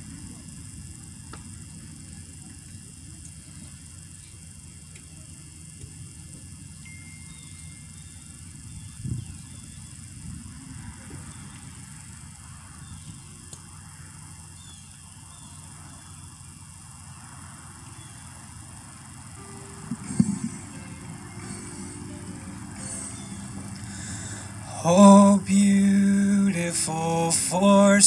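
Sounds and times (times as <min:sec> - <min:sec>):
low steady rumble: 0:00.0 - 0:28.0
faint high chirps: 0:06.8 - 0:10.0.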